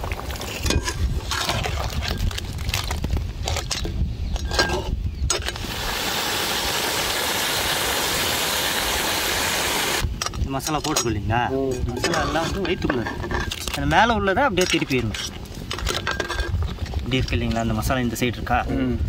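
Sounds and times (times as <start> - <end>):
metal ladle scraping a pot: 11.7 - 13.7.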